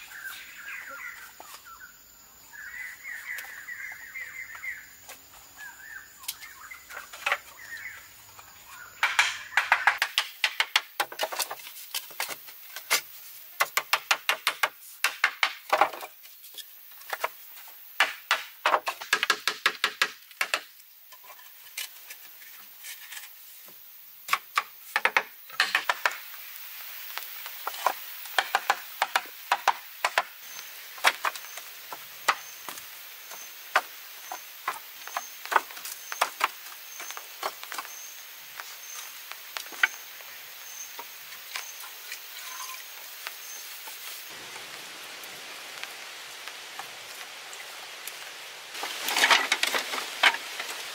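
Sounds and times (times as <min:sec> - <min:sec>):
hollow bamboo clacking: 0:09.0 - 0:13.0.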